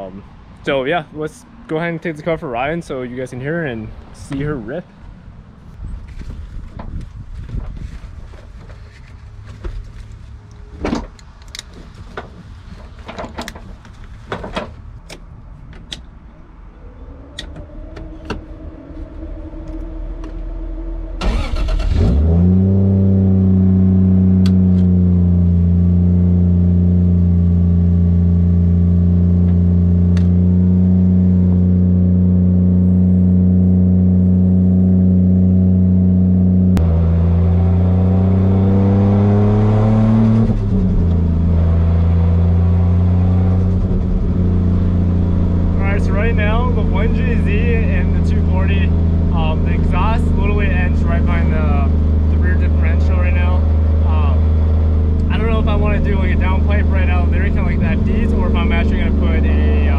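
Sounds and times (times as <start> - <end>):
engine revving as car pulls away: 17.0 - 59.9
car engine cranking and idling: 17.2 - 59.9.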